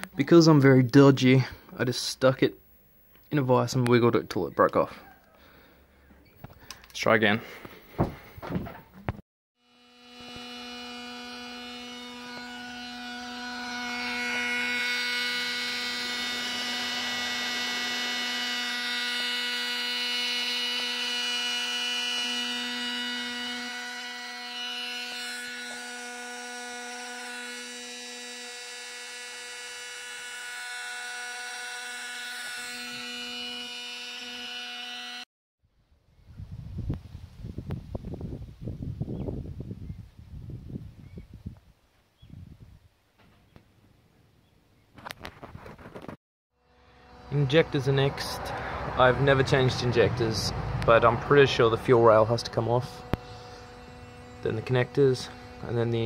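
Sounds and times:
electric fuel pump humming: 9.6 - 35.2, 46.6 - 56.0.

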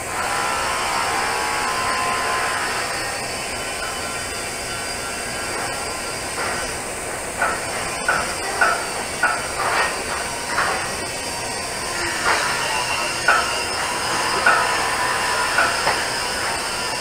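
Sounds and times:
welding arc hissing: 0.0 - 17.0.

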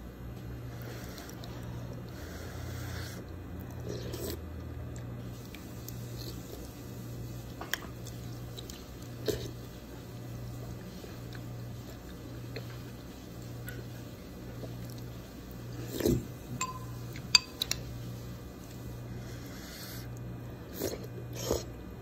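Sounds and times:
steady low hum: 0.0 - 22.0
person sipping and chewing: 0.7 - 6.7, 7.8 - 9.8, 10.8 - 16.3, 18.7 - 21.8
spoon clicks: 16.6 - 17.8.

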